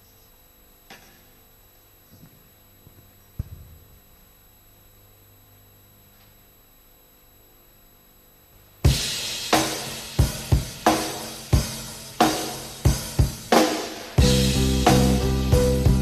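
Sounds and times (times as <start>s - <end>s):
faint steady hum: 0.0s - 16.0s
karaoke backing track: 8.9s - 16.0s.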